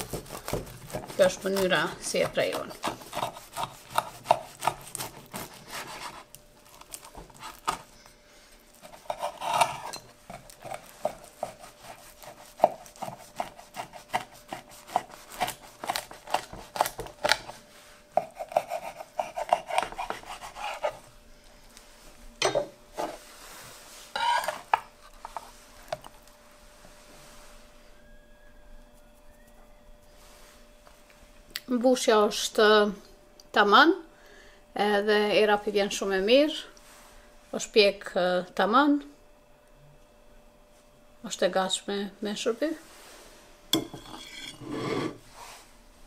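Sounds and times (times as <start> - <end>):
knife scraping wooden board: 0.0 - 6.3, 8.8 - 17.4, 18.2 - 21.0, 43.8 - 45.2
knife crunching through crust: 0.0 - 7.9, 8.8 - 17.5.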